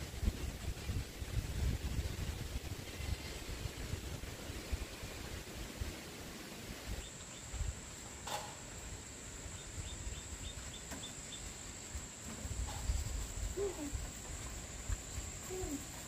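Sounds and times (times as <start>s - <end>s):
wind rumble on microphone: 0.0s - 7.8s, 12.4s - 16.0s.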